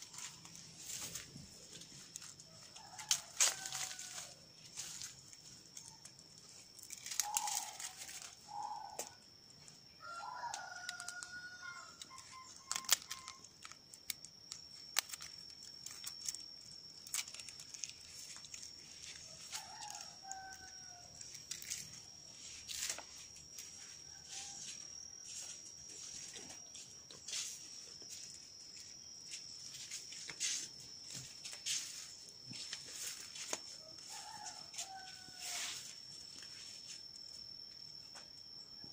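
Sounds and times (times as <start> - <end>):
steady high-pitched tone: 0.0 - 38.9
rooster crowing: 1.7 - 5.1, 9.9 - 13.4, 18.8 - 22.0, 23.6 - 27.5, 32.6 - 36.0.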